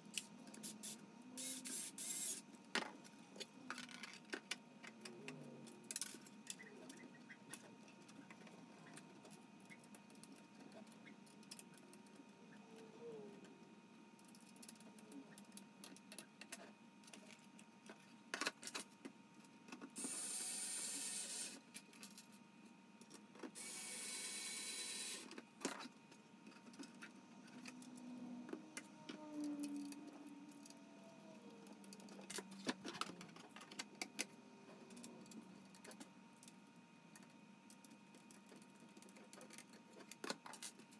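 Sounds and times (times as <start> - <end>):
electric screwdriver running: 0.8 - 2.4, 20.0 - 21.6, 23.6 - 25.2
plastic parts clicking and tapping: 31.6 - 36.6.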